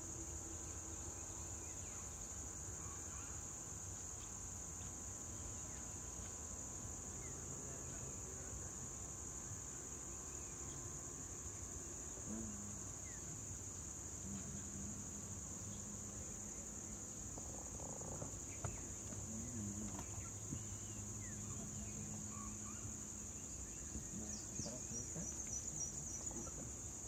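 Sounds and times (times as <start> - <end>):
crickets or cicadas droning: 0.0 - 27.0
faint low hum: 0.0 - 27.0.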